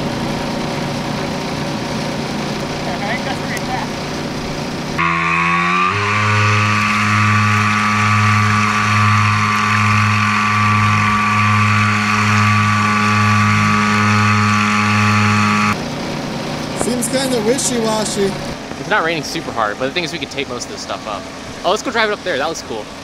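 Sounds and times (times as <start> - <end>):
electric motor whine: 3.9 - 15.8.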